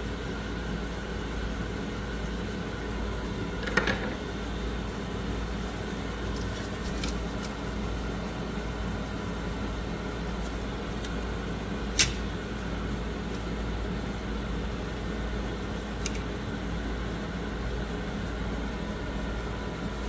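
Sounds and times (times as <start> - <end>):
machine hum and hiss: 0.0 - 20.0
sharp click: 12.0 - 12.2.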